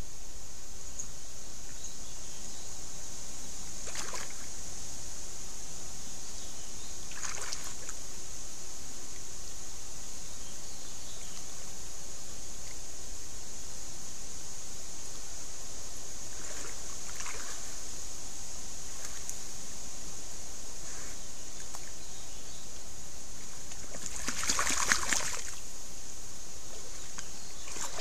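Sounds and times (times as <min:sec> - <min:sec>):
steady high hiss: 0:00.0 - 0:28.0
water sloshing: 0:03.8 - 0:04.5, 0:07.1 - 0:07.9, 0:16.3 - 0:17.8, 0:23.4 - 0:25.6, 0:26.7 - 0:28.0.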